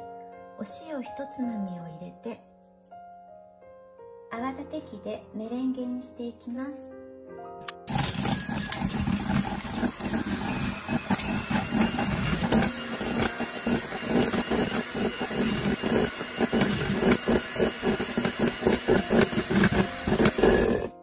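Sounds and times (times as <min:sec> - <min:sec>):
electric hand mixer motor hum: 0:07.8 - 0:21.0.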